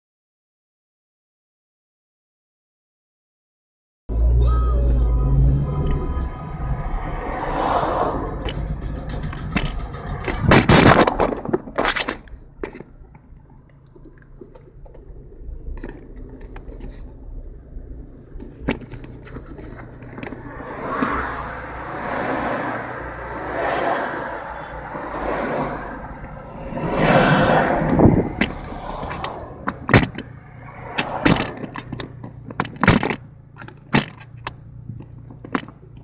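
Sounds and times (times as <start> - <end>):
car engine and road rumble: 4.1 - 36.0
rushes of noise: 5.4 - 12.4, 15.0 - 32.2.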